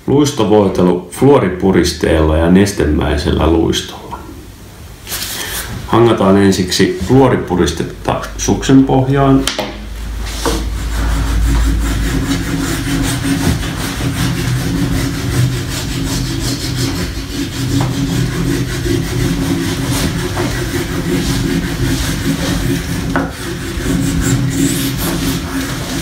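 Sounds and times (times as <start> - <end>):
wax block rubbing on ski base: 10.2 - 26.0.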